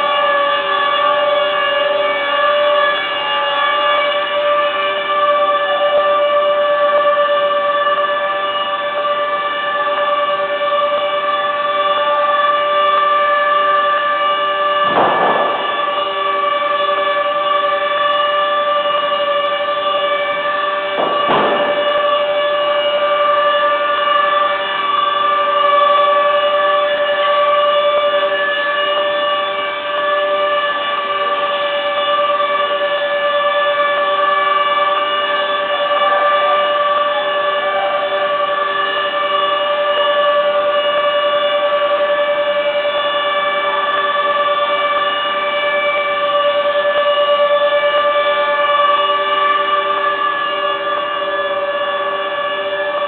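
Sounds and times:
factory machinery whine: 0:00.0 - 0:53.0
low pulsing tone: 0:00.0 - 0:53.0.

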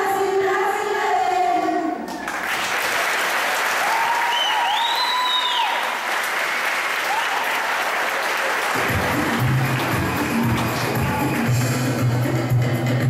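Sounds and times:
audience applauding: 0:02.1 - 0:12.0
music with steady bass beat: 0:08.8 - 0:13.0.

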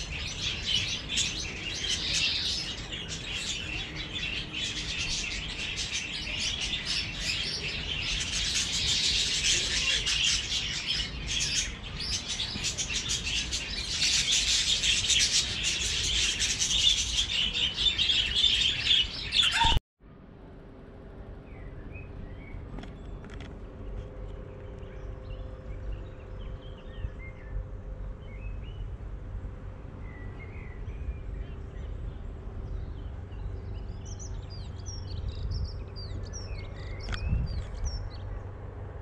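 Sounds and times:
budgerigars chattering: 0:00.1 - 0:19.8
faint bird calls: 0:15.2 - 0:19.8.

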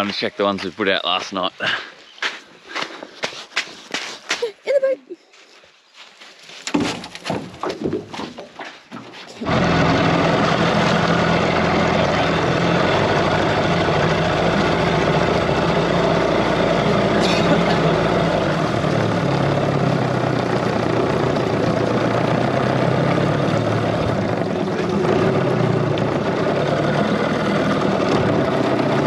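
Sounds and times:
outboard motor running: 0:09.4 - 0:29.0.

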